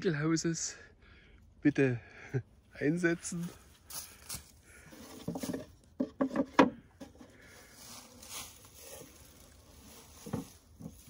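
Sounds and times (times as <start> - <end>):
footsteps rustling through dry leaves: 3.3 - 4.6, 7.4 - 11.0
wooden knocks and crunches: 4.9 - 7.4, 8.1 - 11.0.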